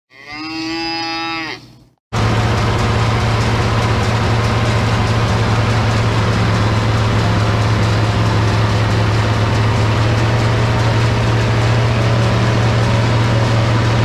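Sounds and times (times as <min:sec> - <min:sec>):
cow mooing: 0:00.1 - 0:01.8
forage chopper running: 0:02.1 - 0:14.0
tractor diesel engine under load: 0:02.1 - 0:14.0.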